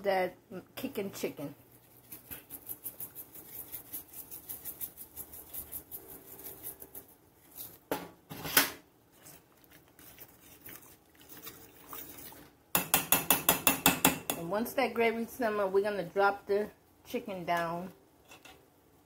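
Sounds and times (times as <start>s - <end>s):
seasoning shaker rattling: 1.8s - 7.8s.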